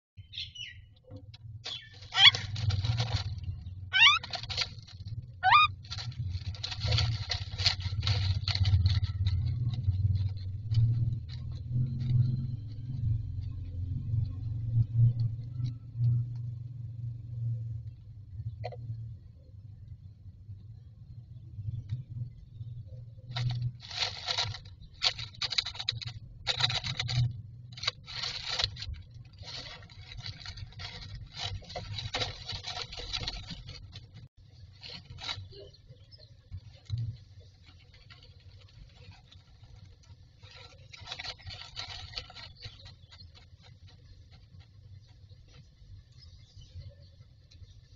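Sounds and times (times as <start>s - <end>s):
low hum: 0.2s - 47.9s
bird rustling nest material: 1.6s - 13.8s, 23.2s - 47.9s.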